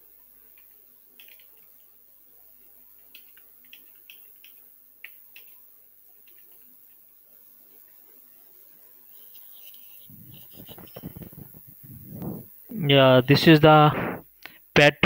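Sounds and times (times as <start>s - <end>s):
keyboard typing: 10.1s - 12.5s.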